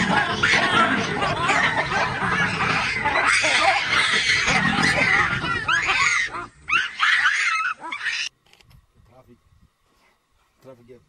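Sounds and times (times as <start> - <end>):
baboon shrieks: 0.0 - 8.3
baboons alarm calling: 0.0 - 8.3.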